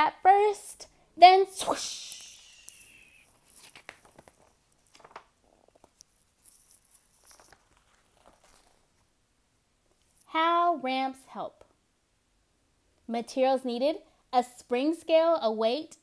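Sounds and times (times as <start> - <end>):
paper pages rustling: 2.1 - 9.1.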